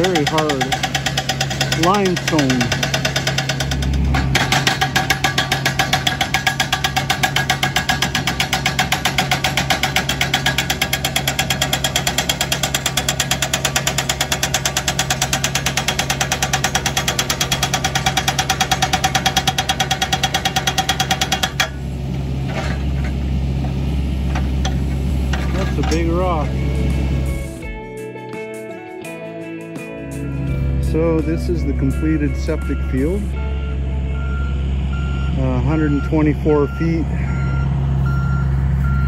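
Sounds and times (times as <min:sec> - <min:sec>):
hydraulic breaker hammering rock: 0:00.0 - 0:27.7
diesel engine running: 0:00.0 - 0:28.0, 0:30.1 - 0:39.0.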